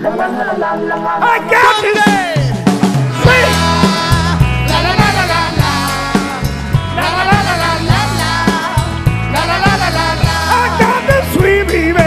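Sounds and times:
pop-rock song: 0.0s - 12.0s.

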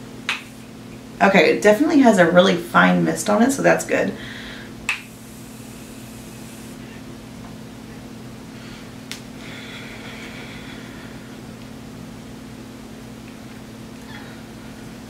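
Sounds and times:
mist spray hiss: 5.0s - 6.8s.

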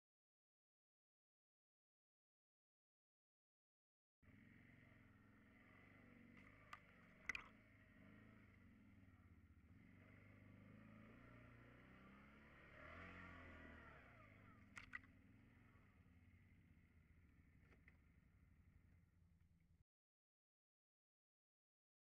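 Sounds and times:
atv engine pulling uphill: 4.2s - 19.8s.

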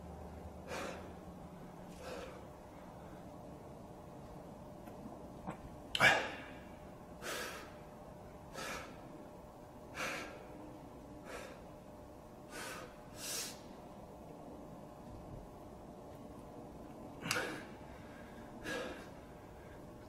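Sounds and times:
man breathing hard: 0.5s - 3.4s, 6.0s - 7.9s, 8.5s - 9.2s, 9.9s - 10.6s, 11.2s - 11.7s, 12.5s - 13.7s, 17.2s - 20.0s.

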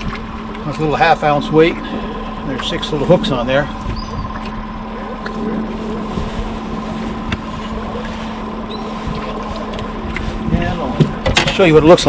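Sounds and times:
outboard motor idling: 0.0s - 12.0s
wind on microphone: 3.1s - 4.7s, 5.4s - 11.4s.

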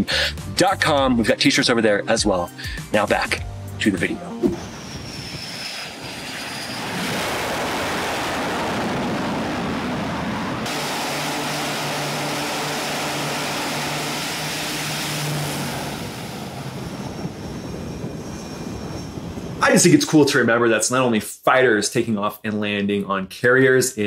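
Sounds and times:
turboprop propeller hum: 2.6s - 19.7s
jet noise: 3.0s - 20.6s.

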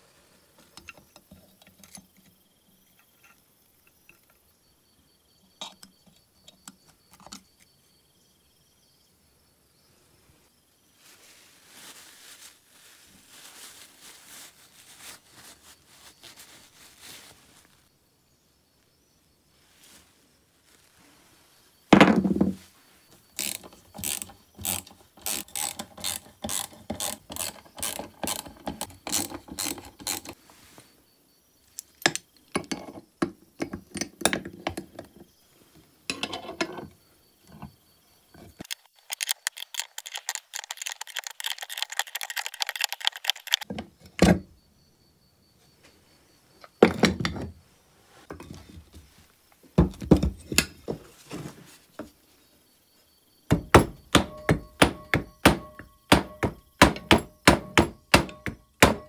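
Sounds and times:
sharp ratchet clicks: 23.4s - 30.4s.

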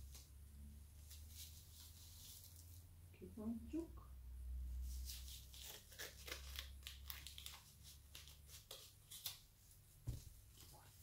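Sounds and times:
plastic packaging crinkling: 5.1s - 9.4s.

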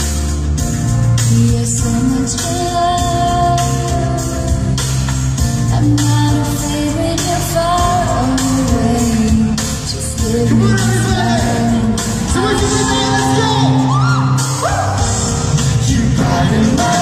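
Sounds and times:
live pop song: 0.0s - 17.0s.

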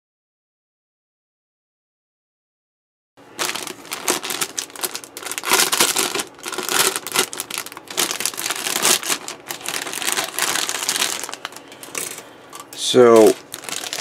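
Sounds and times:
plastic bags crinkling: 3.2s - 14.0s.

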